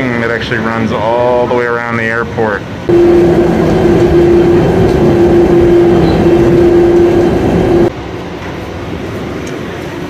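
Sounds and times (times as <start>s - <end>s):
train running rumble: 2.9s - 10.0s.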